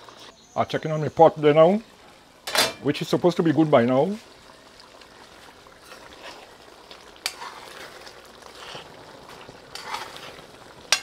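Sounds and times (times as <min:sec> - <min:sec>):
pot hissing: 0:00.0 - 0:11.0
spoon scraping through meat: 0:05.8 - 0:11.0.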